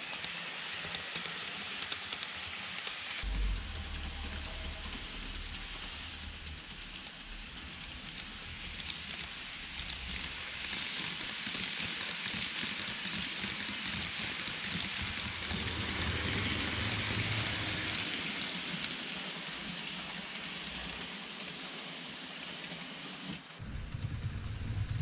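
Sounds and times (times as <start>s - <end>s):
model trains rattling on metal track: 0.0s - 25.0s
wheels clicking over rail joints: 6.4s - 25.0s.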